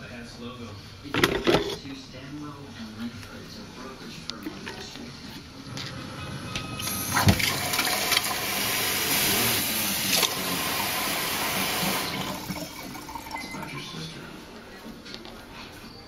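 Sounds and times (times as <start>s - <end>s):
faucet water filling carafe: 6.8s - 14.2s.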